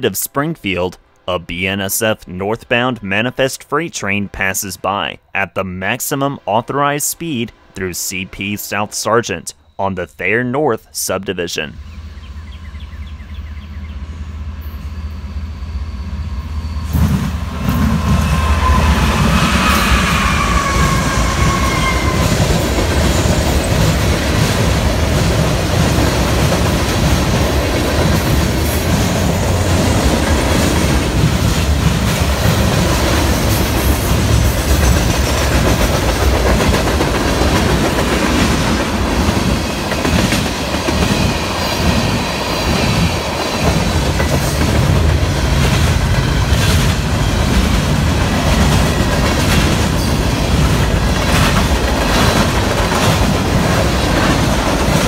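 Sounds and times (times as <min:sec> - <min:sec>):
falling pitch whine: 0:14.6 - 0:22.5
freight cars clickety-clack: 0:19.6 - 0:55.0.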